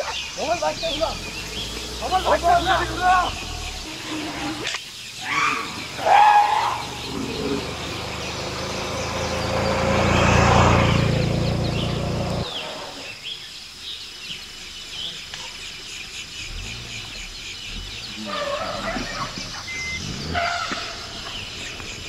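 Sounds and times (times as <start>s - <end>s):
voices calling: 0.0s - 22.0s
motorcycle riding past: 6.8s - 12.6s.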